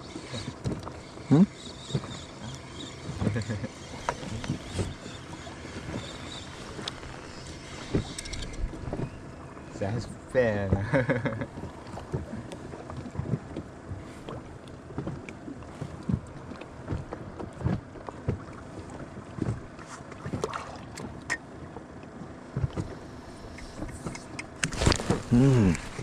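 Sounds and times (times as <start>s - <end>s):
waves slapping rubber boat hull: 0.0s - 26.0s
sharp clicks: 23.5s - 24.9s.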